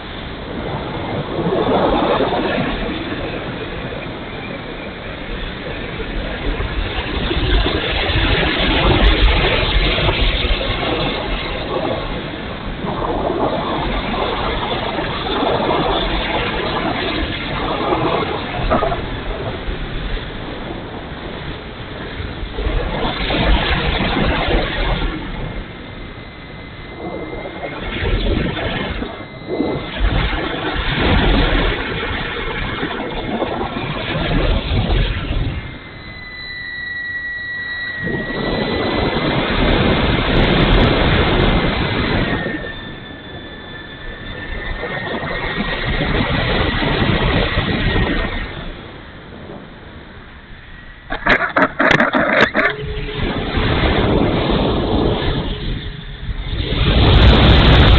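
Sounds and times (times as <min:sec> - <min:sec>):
wind buffeting microphone: 0:00.0 - 0:36.6, 0:37.2 - 0:57.9
model plane motor and propeller: 0:00.0 - 0:57.9.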